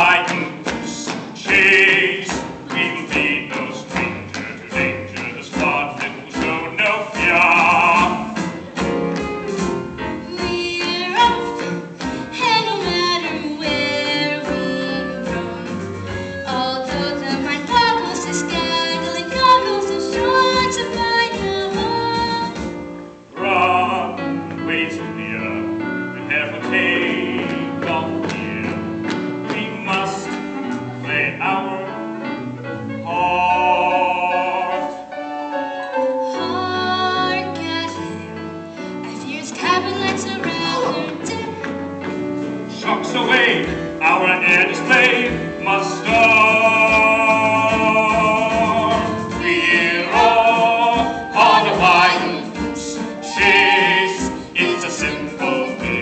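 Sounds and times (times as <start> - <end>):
young cast singing: 0.0 - 8.6, 10.2 - 22.7, 39.1 - 41.7, 42.7 - 56.0
instrumental accompaniment: 0.0 - 56.0.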